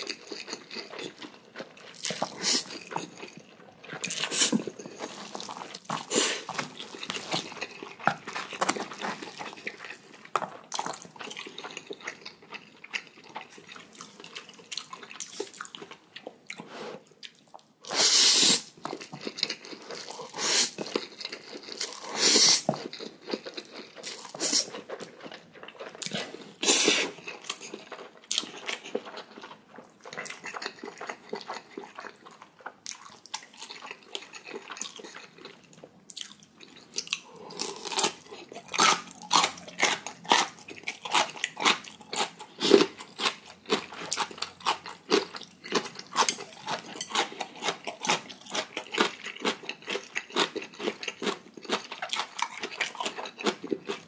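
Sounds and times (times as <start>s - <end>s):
chewing: 0.0s - 18.0s, 18.6s - 54.0s
crisp crunching: 4.0s - 11.7s.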